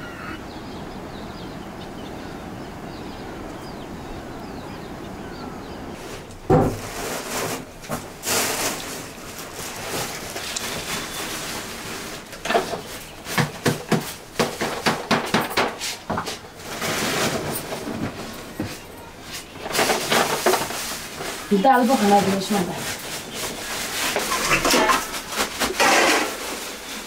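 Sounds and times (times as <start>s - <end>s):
plastic bags rustling: 6.1s - 14.8s, 15.8s - 27.0s.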